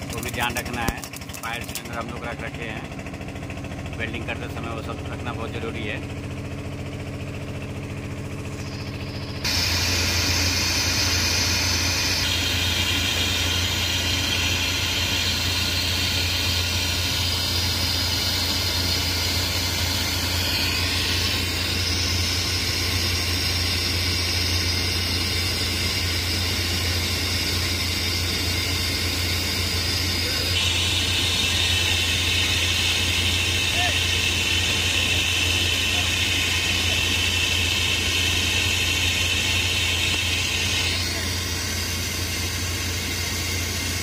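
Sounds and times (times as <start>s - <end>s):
machine hum: 0.0s - 44.0s
loud welding hiss: 8.8s - 44.0s.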